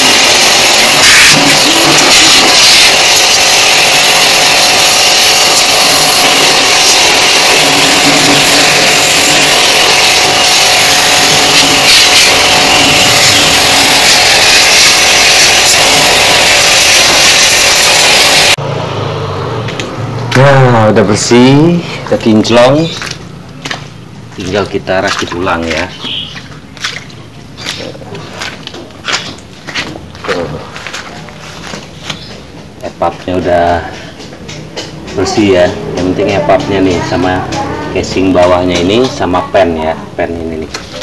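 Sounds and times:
pressure washer motor: 0.0 - 18.6, 19.6 - 39.4
water jet hissing: 0.0 - 18.6.

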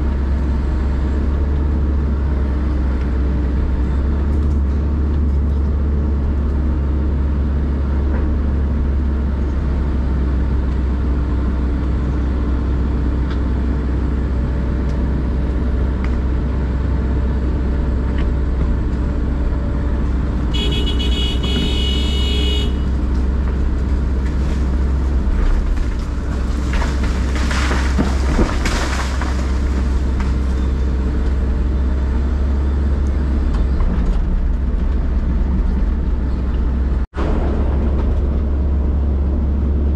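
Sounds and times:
excavator diesel engine under load: 0.0 - 39.9
wood and roots cracking: 22.8 - 39.8.

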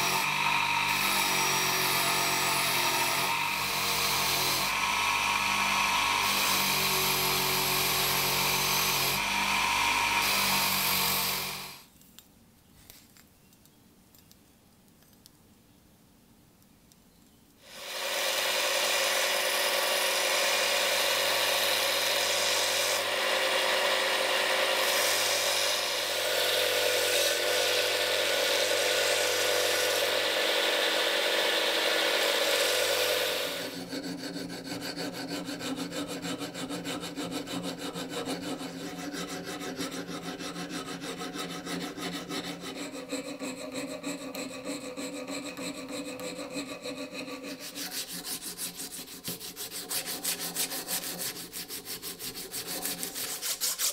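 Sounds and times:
hand file rasping on metal: 0.0 - 11.7, 17.7 - 53.9
bench grinder motor hum: 0.0 - 11.8, 17.7 - 53.9
grinding steel blade: 0.0 - 11.8, 17.7 - 53.9.

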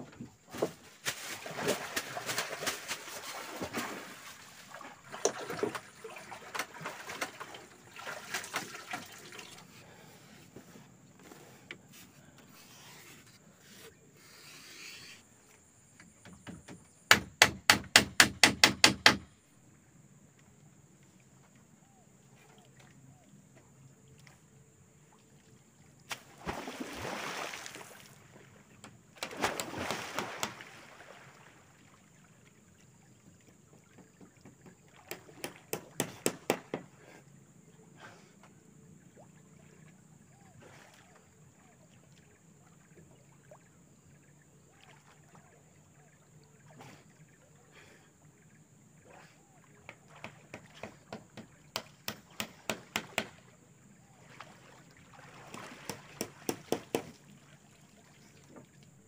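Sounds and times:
water splashing: 1.0 - 10.0, 26.1 - 33.0, 53.3 - 58.8.

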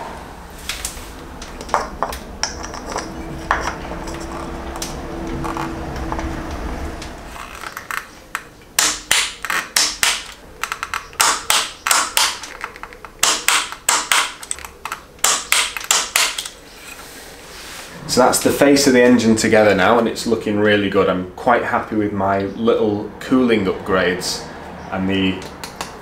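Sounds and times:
low steady hum: 0.0 - 23.9.

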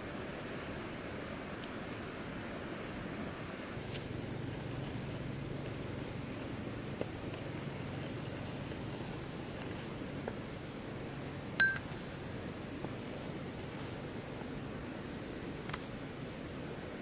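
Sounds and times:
sharp clink of ringing bowl: 11.6 - 11.9.

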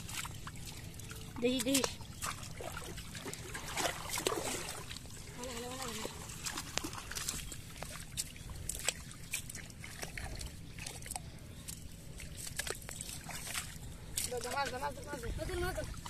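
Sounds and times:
water splashing in shallow water: 0.0 - 16.0.

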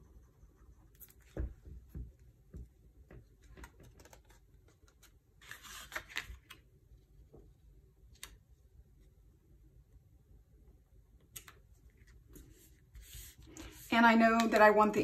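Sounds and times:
paper rustling: 3.4 - 6.6
paper taps and ticks: 14.4 - 14.7.

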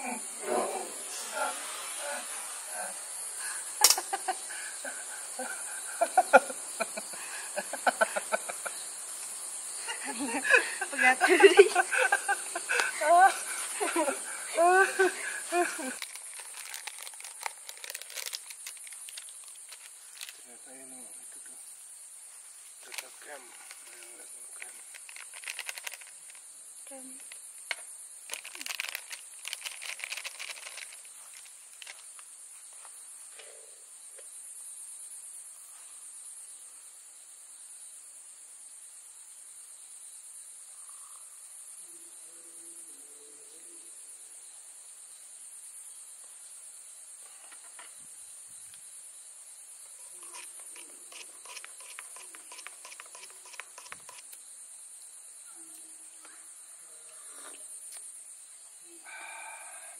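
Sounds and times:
high-pitched insect chorus: 0.0 - 59.9
sachets crinkling and pouring: 15.8 - 20.4, 24.6 - 26.4, 28.3 - 32.0.

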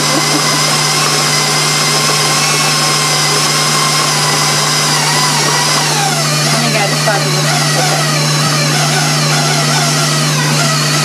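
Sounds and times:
stand mixer motor whine: 0.0 - 11.0.

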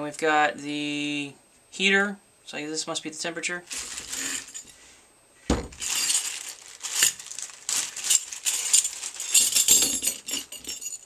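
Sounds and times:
plastic bag crinkling: 3.7 - 4.7, 5.5 - 11.0
metal tips clinking: 3.7 - 4.8, 5.7 - 11.0
tool set down on table: 5.5 - 5.8.

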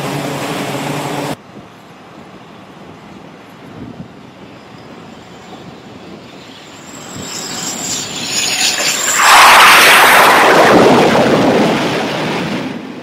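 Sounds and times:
fighter jet engines roaring: 0.0 - 13.0
thin high whine: 4.2 - 11.1.

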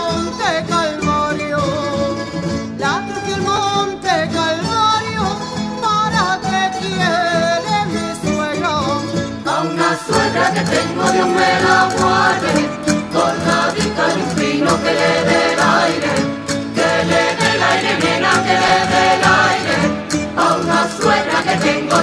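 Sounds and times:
folk instruments playing: 1.0 - 22.0
group of voices singing: 9.4 - 22.0.

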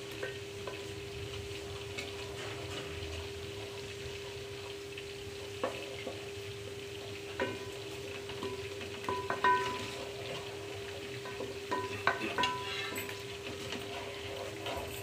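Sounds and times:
sauce sizzling in a pot: 0.0 - 15.0
spatula stirring: 7.0 - 15.0
spatula knocking against pot: 8.3 - 10.0, 11.3 - 12.7.

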